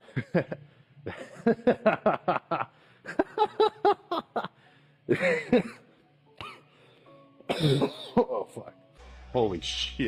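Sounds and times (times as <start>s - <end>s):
person laughing: 0.0s - 4.5s, 5.1s - 5.8s, 7.5s - 8.5s
breathy cough-like vocal sounds: 7.5s - 8.4s.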